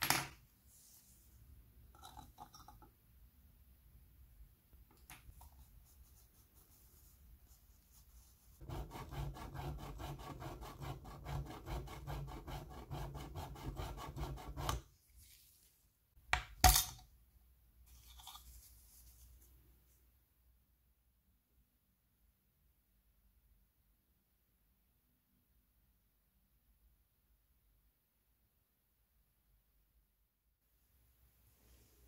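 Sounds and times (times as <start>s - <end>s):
faint handling scratch: 17.9s - 19.6s.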